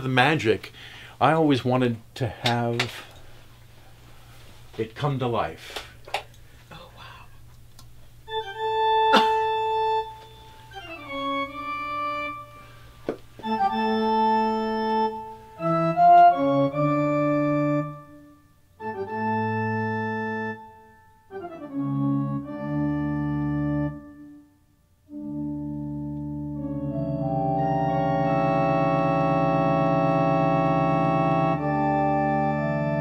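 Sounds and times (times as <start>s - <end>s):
organ playing held chords: 8.1s - 33.0s.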